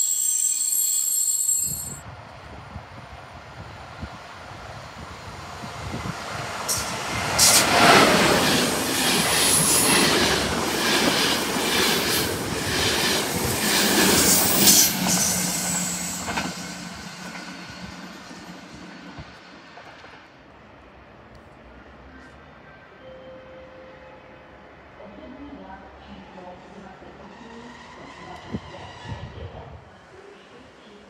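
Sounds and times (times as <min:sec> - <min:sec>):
high wheel squeals: 0:00.0 - 0:02.0.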